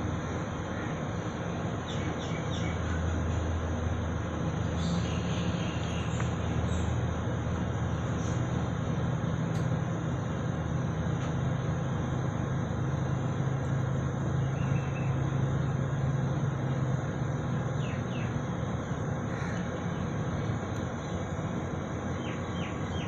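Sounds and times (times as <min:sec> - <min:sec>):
jet engines rumbling: 0:00.0 - 0:23.0.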